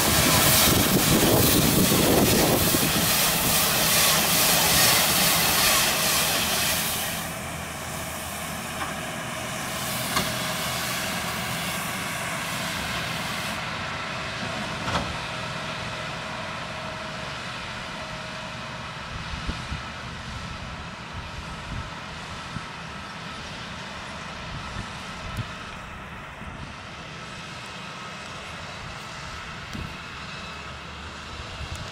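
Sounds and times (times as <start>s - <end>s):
rushing hiss: 0.0s - 14.0s
tractor engine running: 0.0s - 31.9s.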